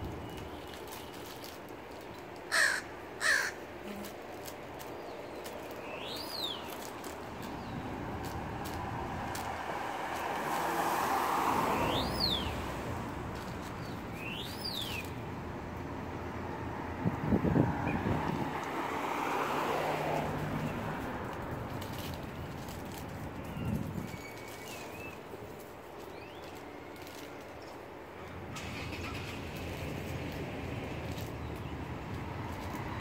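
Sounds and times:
crow cawing: 0:02.5 - 0:03.6.

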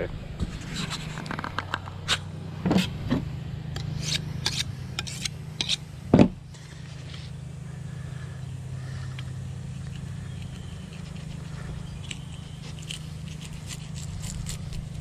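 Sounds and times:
steady low hum: 0:00.0 - 0:15.0
knife scrapes and knocks: 0:00.4 - 0:03.0, 0:04.0 - 0:05.8.

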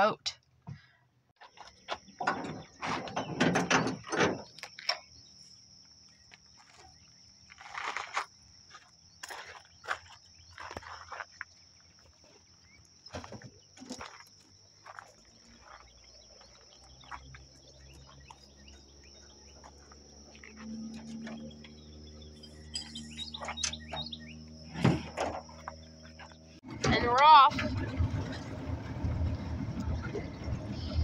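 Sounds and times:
insects droning: 0:01.4 - 0:27.5
low engine hum: 0:15.1 - 0:31.0
bird chirps: 0:15.2 - 0:26.6.

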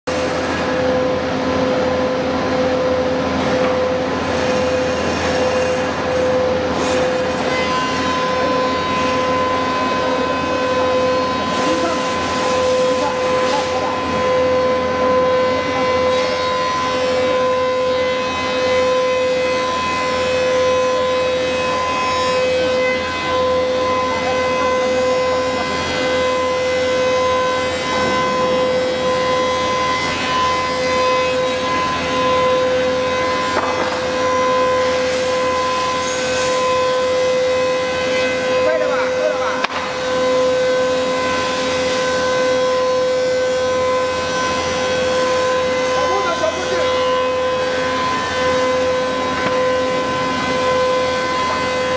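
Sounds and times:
wood planer whining: 0:00.0 - 0:51.9
rough cutting of boards: 0:33.1 - 0:37.0.

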